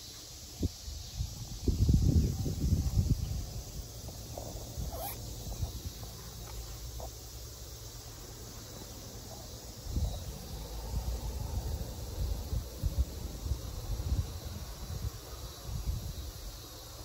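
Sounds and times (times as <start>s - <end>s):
wind buffeting microphone: 0.6s - 6.1s, 9.8s - 10.5s.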